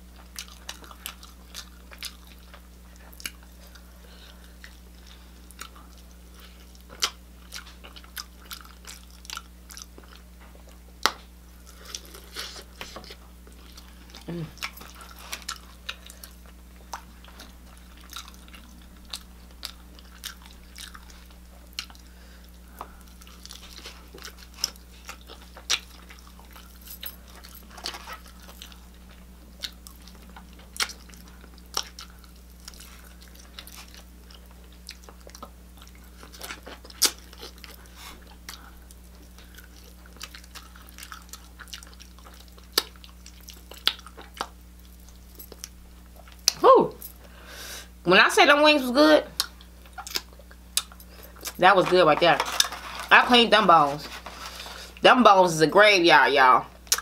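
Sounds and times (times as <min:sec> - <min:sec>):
steady low hum: 0:00.0 - 0:57.0
person biting and chewing: 0:04.6 - 0:46.6, 0:49.4 - 0:51.6.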